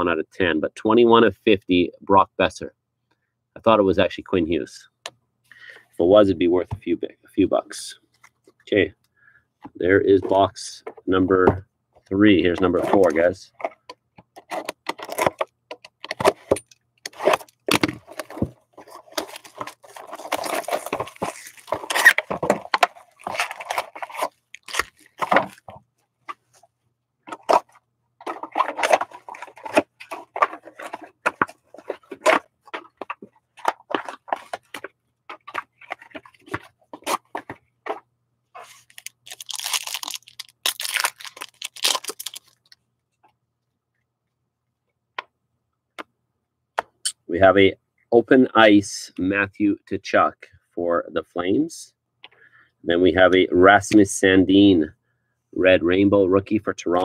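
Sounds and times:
wrapping rustling and crinkling: 17.1s - 25.8s, 27.3s - 38.0s, 38.6s - 42.8s
wrapping being torn: 18.8s - 22.3s, 22.9s - 25.6s, 38.6s - 42.8s.

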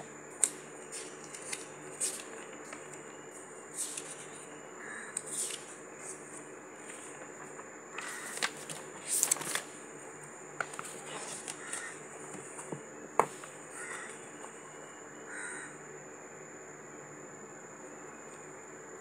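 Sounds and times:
room hum with high whine: 0.0s - 19.0s
paper rustling: 0.9s - 2.9s, 3.7s - 4.4s, 5.3s - 9.7s.

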